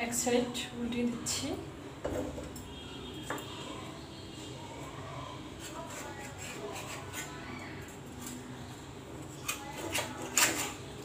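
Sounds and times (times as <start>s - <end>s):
spatula scraping a pan: 5.5s - 7.4s, 9.3s - 11.0s.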